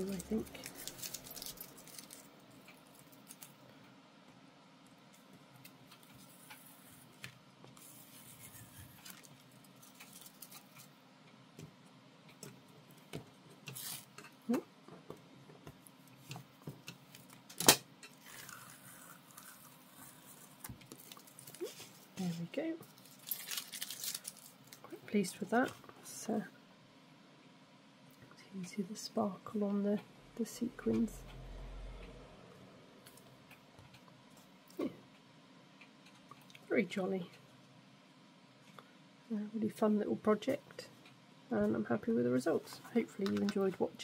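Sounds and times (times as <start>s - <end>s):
tape peeling off paper: 0.1s - 2.3s, 13.7s - 14.1s, 23.0s - 24.5s.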